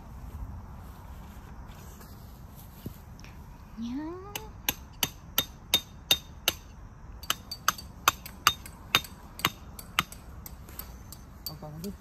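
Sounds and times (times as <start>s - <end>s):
hammer striking metal tent peg: 4.3s - 11.7s.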